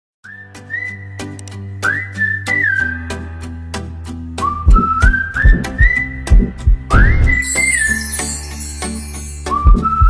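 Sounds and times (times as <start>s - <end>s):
whistled melody: 0.2s - 3.6s, 4.2s - 10.0s
clicking beat: 4.7s - 7.4s
sustained bass notes: 4.7s - 7.5s.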